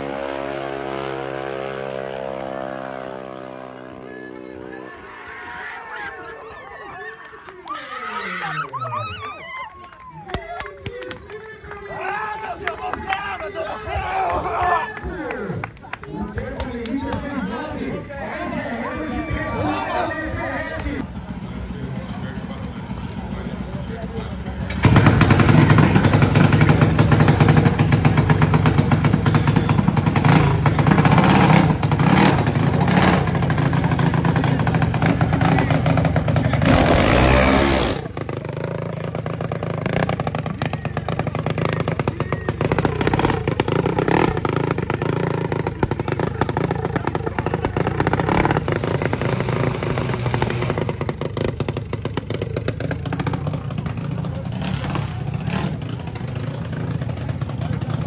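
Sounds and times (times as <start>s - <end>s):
dragster engine running: 17.6s - 58.0s.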